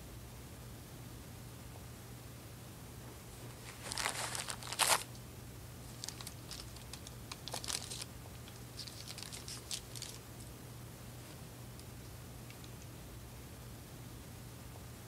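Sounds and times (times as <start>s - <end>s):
tissue paper crinkling: 3.4s - 5.2s, 5.9s - 10.2s.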